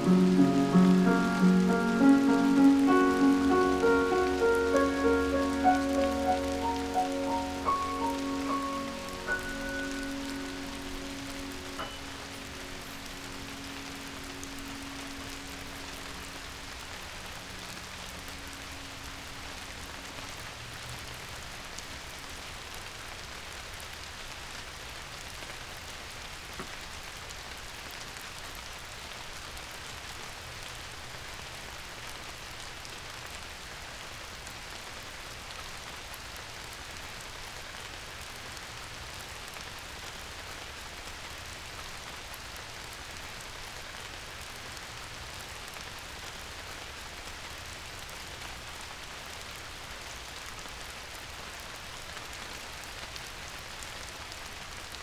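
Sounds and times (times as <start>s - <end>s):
held musical notes: 0.0s - 16.0s
steady rain: 0.0s - 55.0s.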